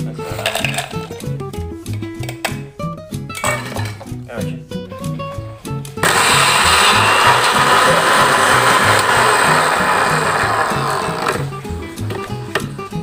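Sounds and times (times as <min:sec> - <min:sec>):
blender grinding mill whirring: 0:06.0 - 0:11.6.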